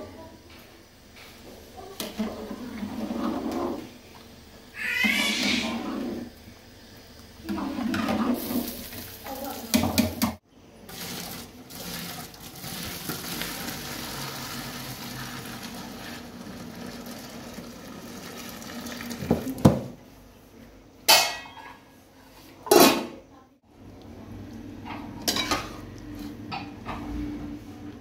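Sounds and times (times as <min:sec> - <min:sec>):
water pouring into a sink: 0:07.5 - 0:10.0, 0:10.9 - 0:19.8
metal pot and lid clanking: 0:21.1 - 0:21.8.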